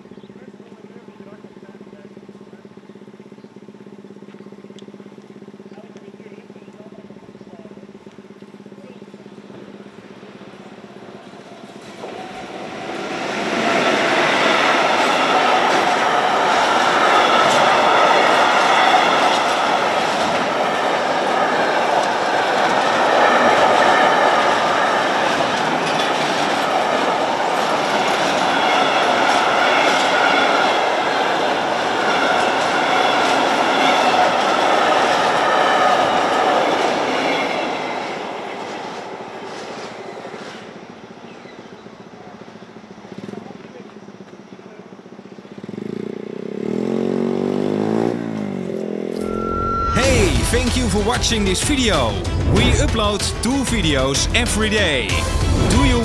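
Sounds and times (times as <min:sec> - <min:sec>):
freight train wagons clattering: 0:05.4 - 0:43.9.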